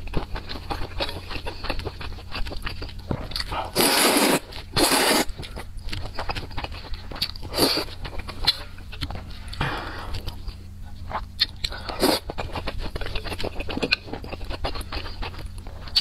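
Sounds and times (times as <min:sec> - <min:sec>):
chewing with wet mouth clicks: 0:00.0 - 0:16.0
slurping noodle soup: 0:03.6 - 0:05.6, 0:06.2 - 0:08.6, 0:11.1 - 0:13.8.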